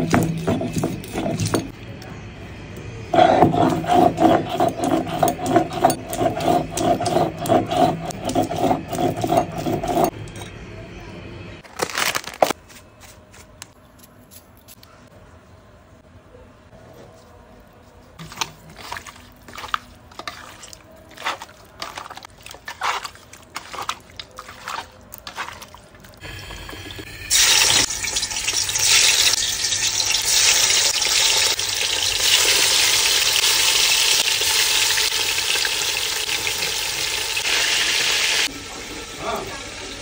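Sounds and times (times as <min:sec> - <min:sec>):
water running into sink: 0:25.5 - 0:38.5.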